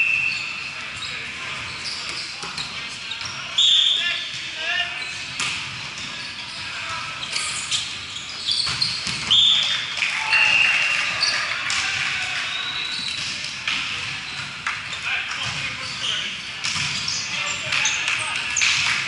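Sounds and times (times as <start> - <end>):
players calling out: 6.0 - 16.4.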